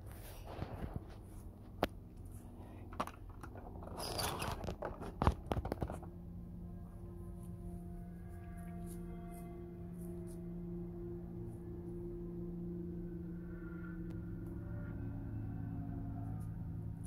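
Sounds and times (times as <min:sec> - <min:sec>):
steady ringing drone: 0:00.0 - 0:17.0
camera handling noise in undergrowth: 0:03.4 - 0:06.1.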